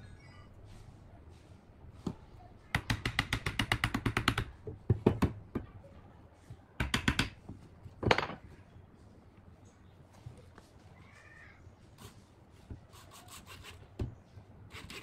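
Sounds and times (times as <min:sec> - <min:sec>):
hammer tapping on wood: 0:02.7 - 0:05.4, 0:06.8 - 0:07.4.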